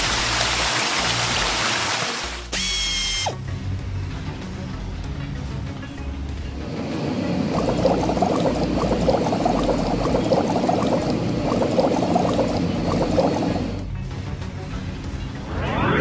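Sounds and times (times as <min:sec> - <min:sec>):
cartoon bubbling sound effect: 0:07.6 - 0:13.6.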